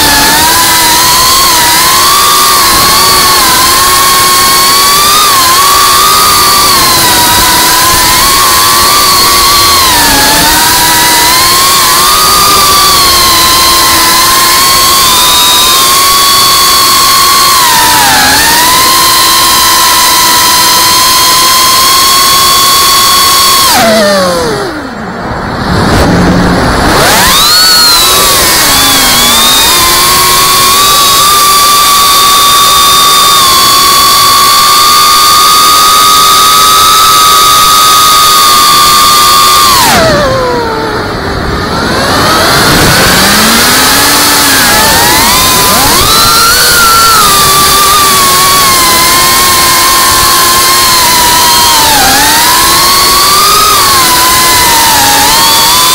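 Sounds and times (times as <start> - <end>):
drone motors and propellers whining: 0.0 - 55.9
wind noise: 23.7 - 34.7, 38.2 - 55.9.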